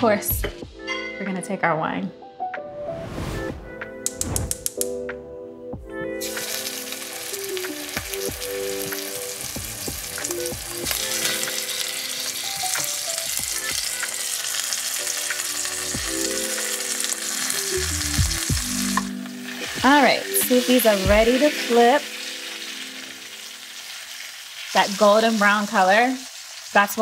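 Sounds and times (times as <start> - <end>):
soft background music: 0.0 - 26.1
meat sizzling in hot oil: 6.2 - 27.0.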